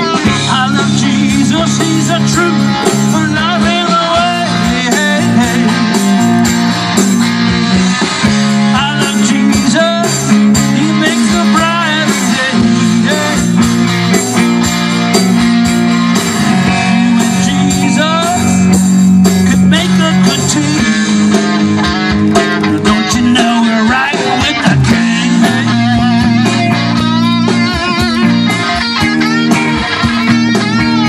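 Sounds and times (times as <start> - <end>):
lead guitar bent notes: 0.0 - 31.0
live blues-rock band: 0.0 - 31.0.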